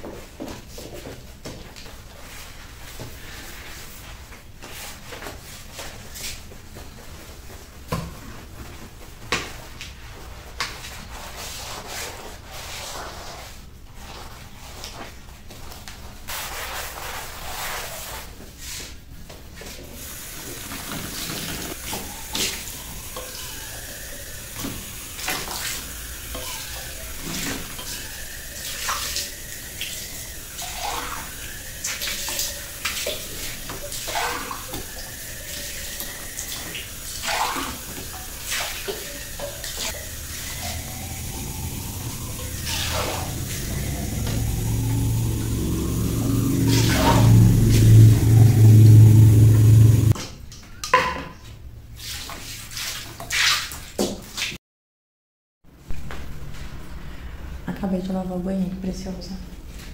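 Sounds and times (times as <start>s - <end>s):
sponge scrubbing: 10.2s - 15.2s, 16.3s - 18.9s, 22.1s - 50.2s.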